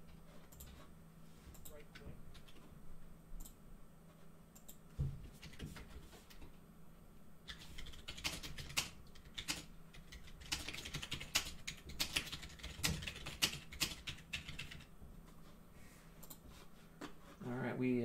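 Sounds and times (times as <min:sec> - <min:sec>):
keyboard typing: 0:07.5 - 0:14.9.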